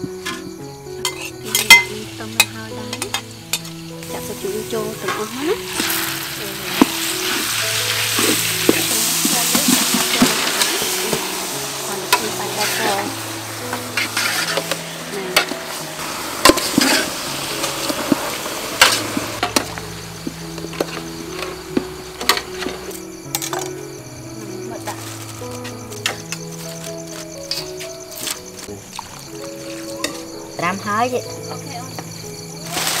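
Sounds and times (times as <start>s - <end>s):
metal spatula scraping pan: 0.3s - 3.9s, 5.1s - 19.7s
meat sizzling in a pan: 0.7s - 24.1s, 32.2s - 33.0s.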